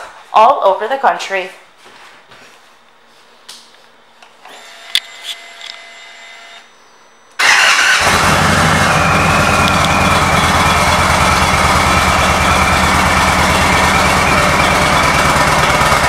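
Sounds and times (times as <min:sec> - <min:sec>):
faint starter whine: 0:04.2 - 0:16.0
motorcycle engine idling: 0:08.0 - 0:16.0.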